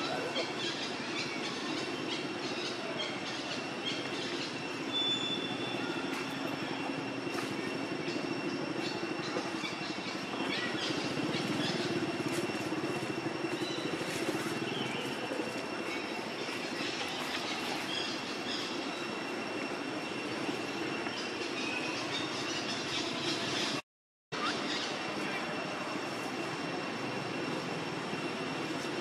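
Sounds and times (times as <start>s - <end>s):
outdoor drone with whining tones: 0.0s - 23.8s, 24.4s - 29.0s.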